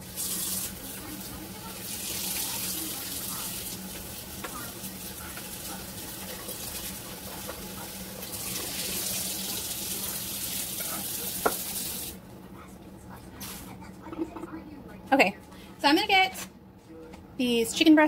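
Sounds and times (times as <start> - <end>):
tap water running into sink: 8.2 - 12.2.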